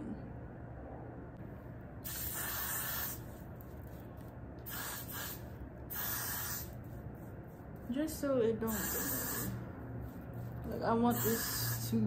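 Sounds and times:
aerosol hairspray hissing: 0:02.0 - 0:03.4, 0:04.7 - 0:06.8, 0:08.6 - 0:09.6, 0:10.8 - 0:12.0.

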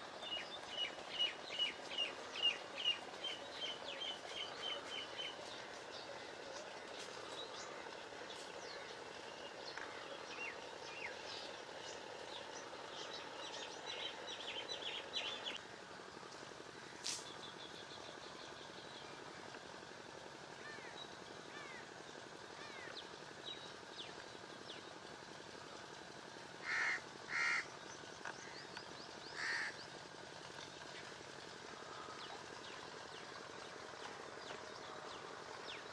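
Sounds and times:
birds chirping: 0:00.0 - 0:35.9.

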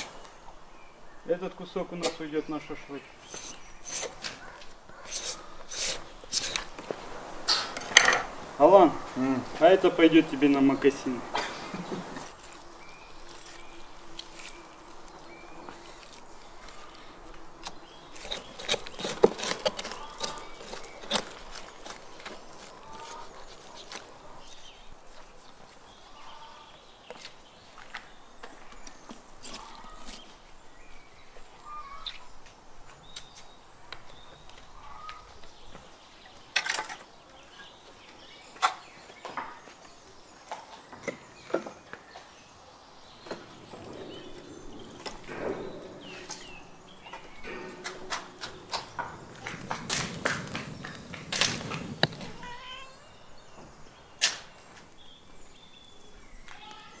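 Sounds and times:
sharp knocks and clatters: 0:43.2 - 0:52.5.

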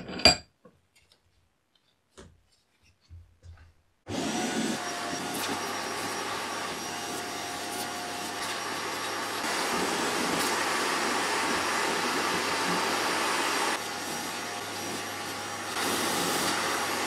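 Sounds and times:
shop vacuum running: 0:04.1 - 0:17.0
air rushing through nozzle: 0:04.2 - 0:15.0.

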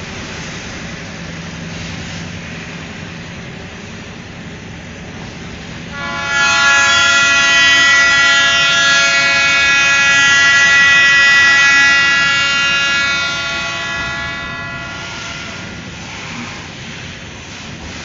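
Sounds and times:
freight cars rolling on rails: 0:00.0 - 0:18.0
train horn blast: 0:05.9 - 0:16.7.

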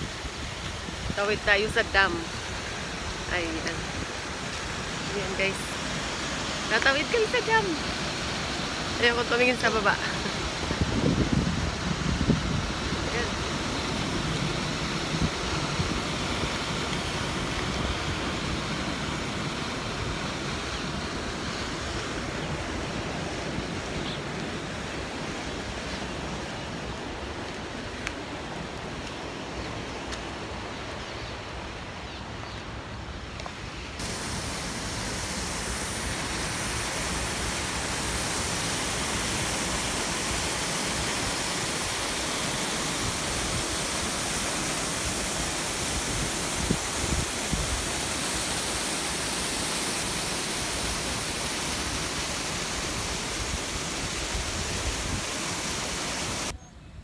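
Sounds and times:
rushing water: 0:00.0 - 0:56.6
wind buffeting microphone: 0:10.4 - 0:18.6.

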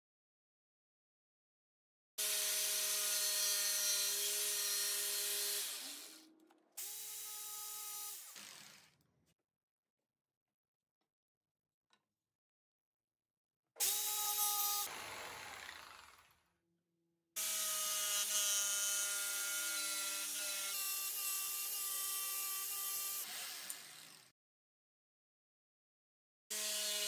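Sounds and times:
electric jigsaw cutting wood: 0:02.2 - 0:09.0, 0:13.8 - 0:16.5, 0:17.4 - 0:24.3, 0:26.5 - 0:27.0.

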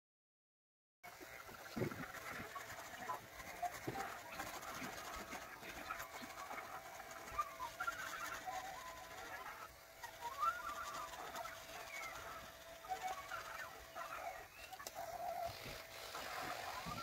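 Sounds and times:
birds chirping: 0:01.1 - 0:17.0
electric hair clippers humming: 0:15.4 - 0:17.0.

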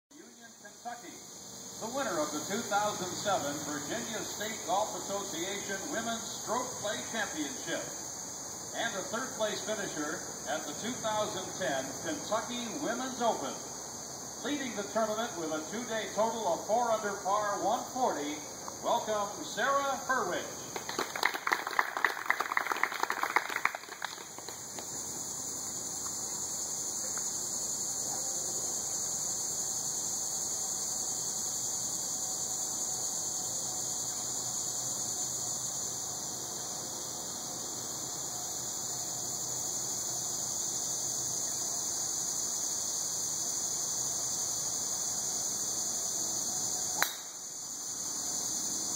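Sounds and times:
high-pitched hiss: 0:00.1 - 0:48.9
applause: 0:20.7 - 0:24.9.

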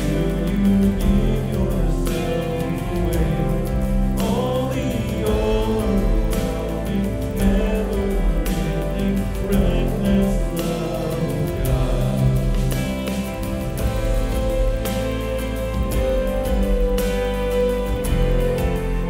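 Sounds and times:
man singing into a microphone: 0:00.0 - 0:13.0
worship song accompaniment: 0:00.0 - 0:19.0.

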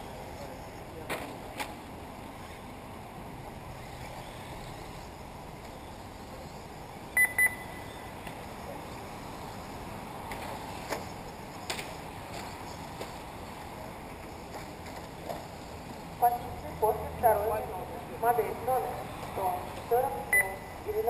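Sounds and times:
steady background hiss: 0:00.0 - 0:21.0
short electronic beeps: 0:07.2 - 0:07.8, 0:20.3 - 0:20.8.

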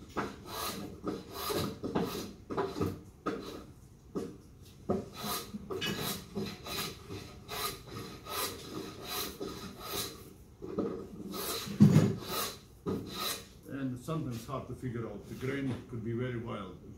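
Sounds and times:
hand plane shaving wood: 0:00.2 - 0:03.6, 0:05.0 - 0:10.2, 0:11.2 - 0:13.5.

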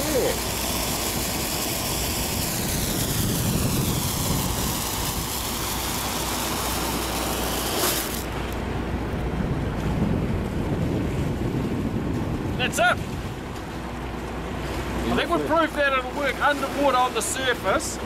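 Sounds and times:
flare burning with loud hiss: 0:00.0 - 0:08.6
low steady rumble: 0:00.0 - 0:18.0.

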